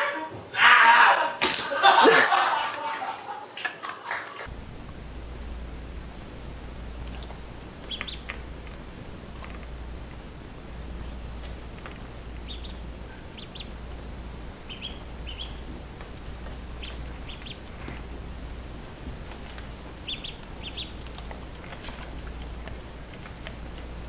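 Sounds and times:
steady low hum: 4.4 - 24.0
duckling peeping: 7.0 - 9.8, 10.8 - 24.0.

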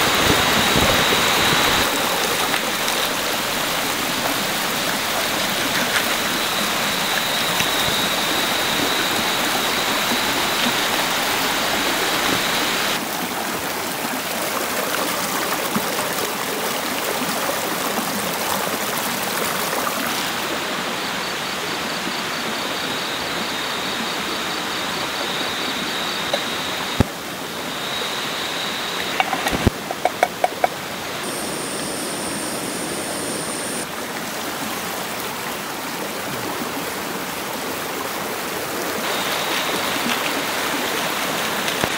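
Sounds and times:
flowing stream rushing: 0.0 - 21.3, 23.2 - 41.9
thin high steady tone: 27.6 - 33.9.

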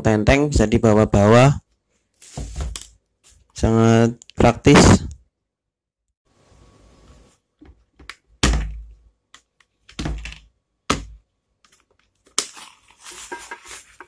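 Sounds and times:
plastic wrapping rustling: 11.6 - 14.0.

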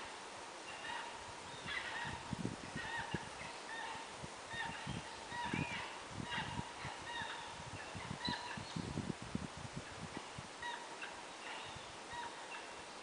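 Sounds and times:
low rumble of wind and water: 0.0 - 13.0
faint short bird calls: 10.6 - 13.0.

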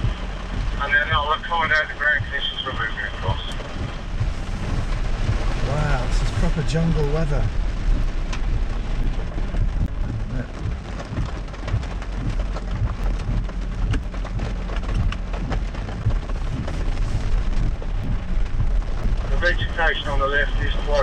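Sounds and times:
off-road vehicle low rumble: 0.0 - 21.0
rain: 0.0 - 21.0
sharp taps and knocks: 6.3 - 19.3.

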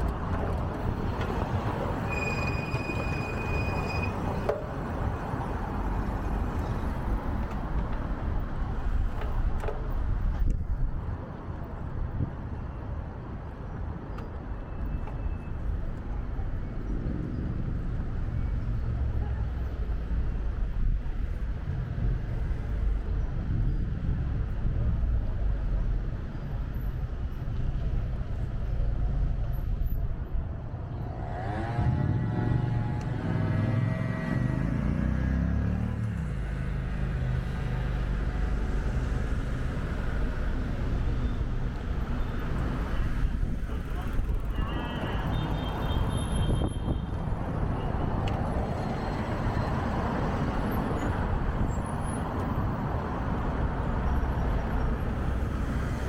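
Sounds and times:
traffic rumble: 0.0 - 56.0
vehicle engine humming: 28.3 - 45.0.

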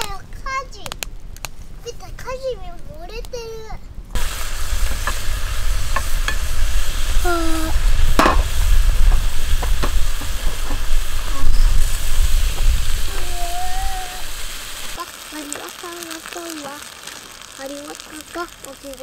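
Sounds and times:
vegetables sizzling in a pan: 4.2 - 19.0.

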